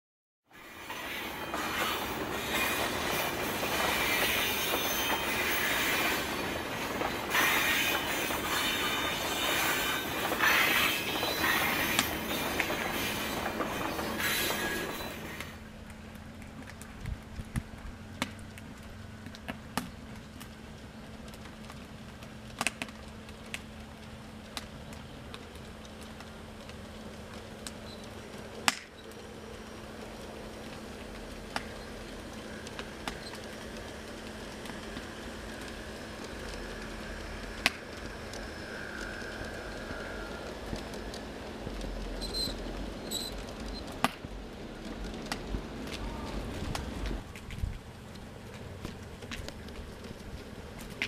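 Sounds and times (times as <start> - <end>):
wheels clicking on rails: 0.6 - 51.0
model trains humming: 27.1 - 51.0.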